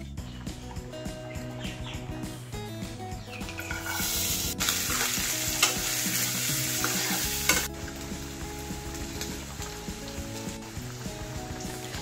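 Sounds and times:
coconut sizzling in oil: 3.5s - 12.0s.

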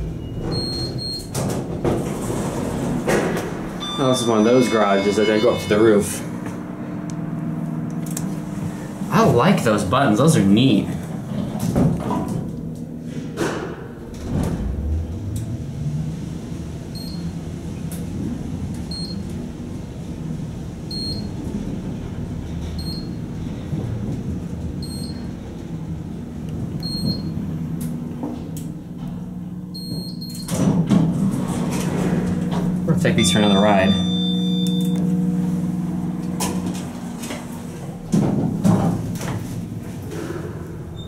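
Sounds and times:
elevator hum: 0.0s - 41.0s
short high beeps: 3.8s - 6.2s, 33.2s - 35.0s.

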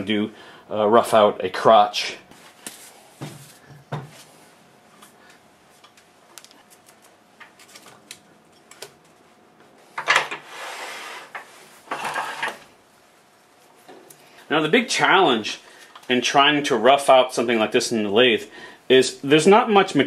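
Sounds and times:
wood scraping on metal: 10.4s - 12.6s.

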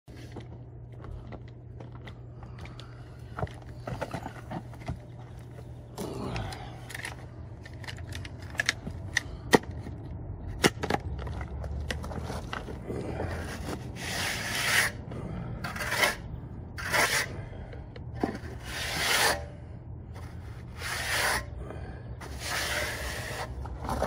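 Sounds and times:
steady low hum: 0.1s - 24.0s.

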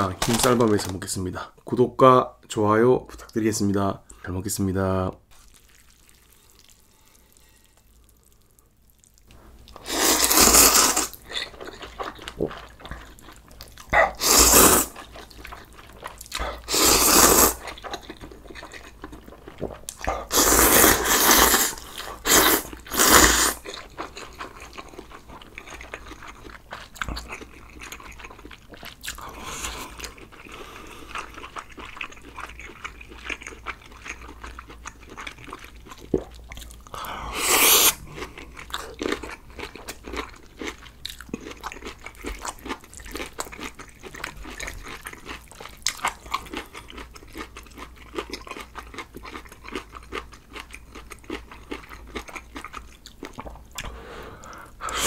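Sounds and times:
chewing and crunching food: 5.3s - 55.0s
loud mouth sounds: 14.0s - 15.0s, 16.4s - 17.6s, 19.9s - 23.6s, 36.9s - 39.0s, 53.4s - 55.0s.

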